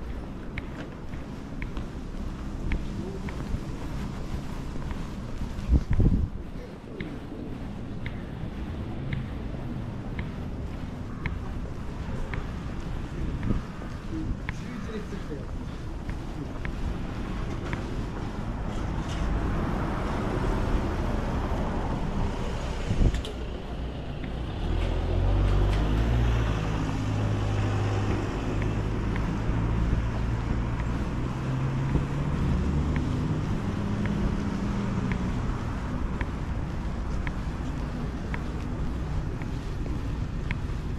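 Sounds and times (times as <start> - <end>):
traffic noise: 0.0 - 40.9
vehicle engine running: 16.0 - 40.9.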